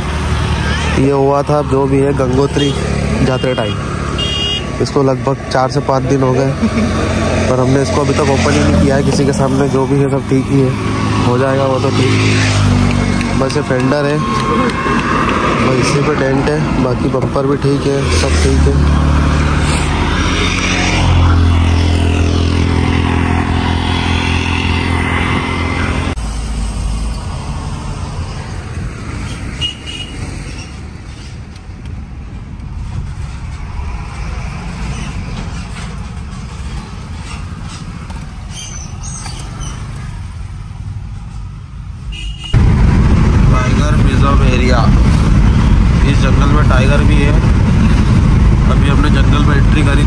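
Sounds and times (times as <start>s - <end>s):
road traffic noise: 0.0s - 50.0s
vehicle engine running: 42.6s - 50.0s.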